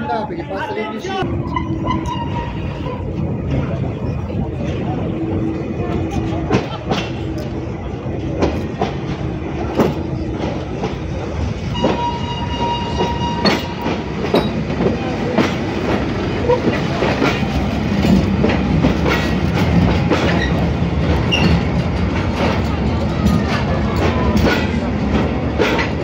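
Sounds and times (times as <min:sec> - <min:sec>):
train carriages rumbling: 0:00.0 - 0:26.0
wheels clacking over rail joints: 0:05.9 - 0:26.0.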